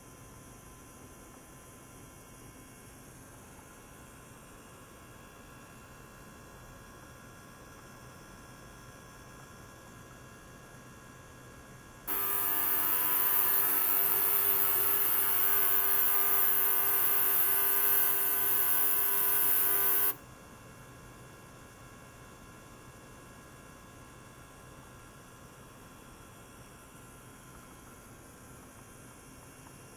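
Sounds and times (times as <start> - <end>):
ultrasonic cleaner hissing: 12.1 - 20.2.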